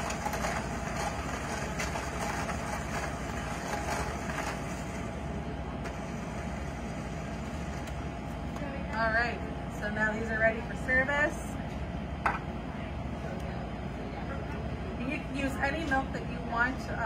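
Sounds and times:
electric hand mixer whipping: 0:00.0 - 0:05.0.

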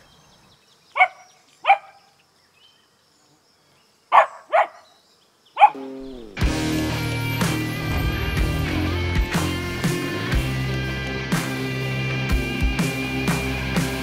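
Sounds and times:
dog barking: 0:01.0 - 0:02.0, 0:04.1 - 0:04.9, 0:05.6 - 0:05.8.

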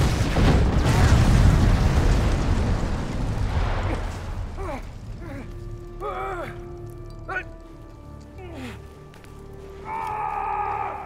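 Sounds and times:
large explosion rumbling blast: 0:00.0 - 0:05.3.

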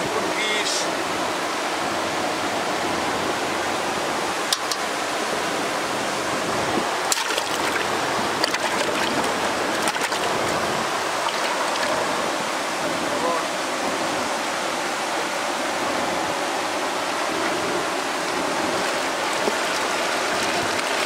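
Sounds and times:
river water flowing: 0:00.0 - 0:21.0.

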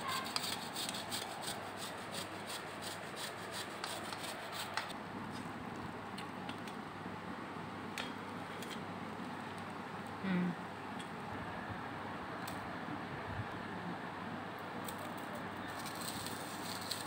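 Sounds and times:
banana rasping on metal grater: 0:00.0 - 0:04.9, 0:15.8 - 0:17.0.

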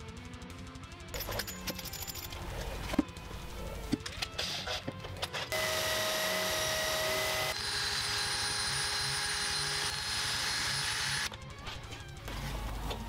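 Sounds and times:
cordless drill motor whine: 0:05.5 - 0:11.3.

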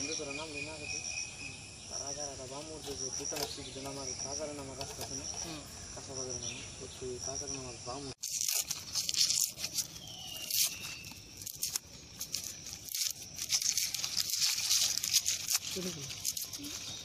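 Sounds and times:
insects chirping: 0:00.0 - 0:17.0
onion skin crackling: 0:08.2 - 0:17.0
plastic bag crinkling: 0:08.2 - 0:17.0.

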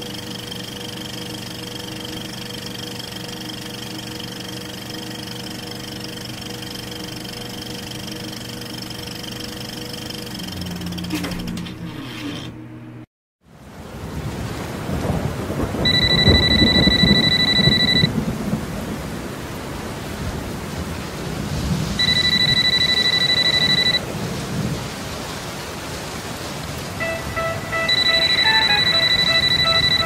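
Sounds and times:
alarm clock ringing: 0:00.0 - 0:11.4, 0:15.8 - 0:18.1, 0:22.0 - 0:24.0, 0:27.0 - 0:30.0
rain: 0:13.5 - 0:30.0
rolling thunder: 0:14.0 - 0:17.2, 0:18.1 - 0:22.0
music: 0:27.0 - 0:30.0.

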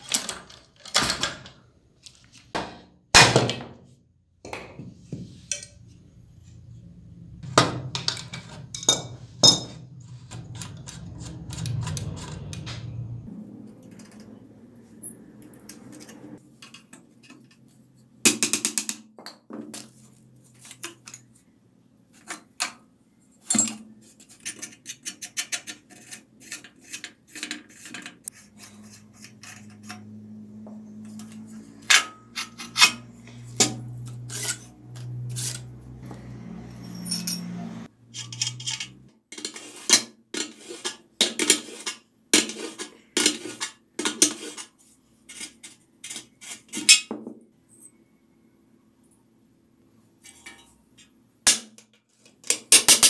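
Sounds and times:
metal parts clinking and knocking: 0:07.5 - 0:12.8, 0:38.1 - 0:39.5.

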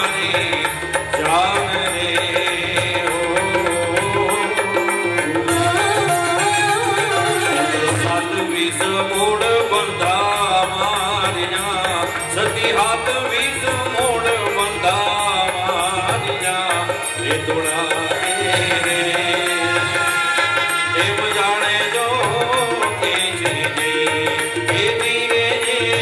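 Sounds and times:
bending folk melody: 0:00.1 - 0:25.8.

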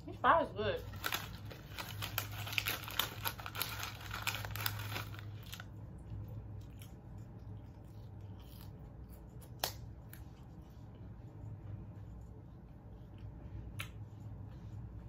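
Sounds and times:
paper crinkling and tearing: 0:00.8 - 0:05.7.

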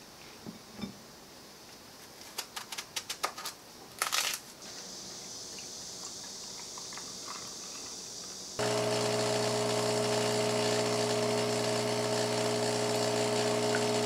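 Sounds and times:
faint steady hiss: 0:00.0 - 0:08.6.

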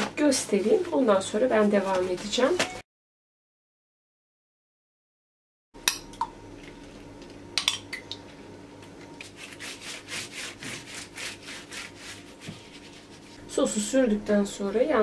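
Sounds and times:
pastry brush swishing: 0:09.4 - 0:13.4.

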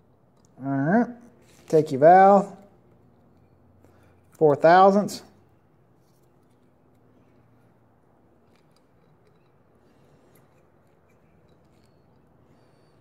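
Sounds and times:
faint metallic clicks and scrapes: 0:02.6 - 0:04.6, 0:05.4 - 0:13.0.

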